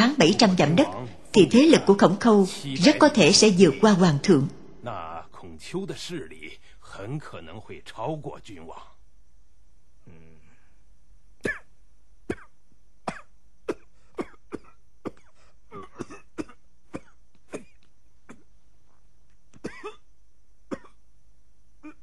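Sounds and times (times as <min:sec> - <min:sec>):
elderly man coughing: 0:11.4 - 0:11.7, 0:13.1 - 0:18.5, 0:19.6 - 0:20.0, 0:20.7 - 0:21.0.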